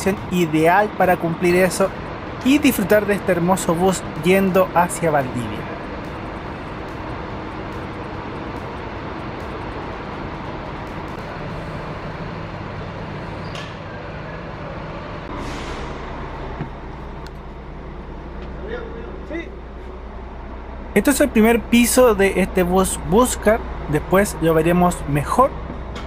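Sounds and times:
diesel coach engine idling: 0:00.0 - 0:26.0
brief hiss: 0:15.3 - 0:16.1.

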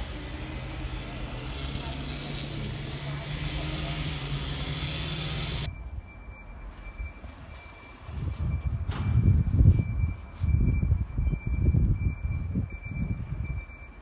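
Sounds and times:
wind buffeting microphone: 0:08.0 - 0:13.8.

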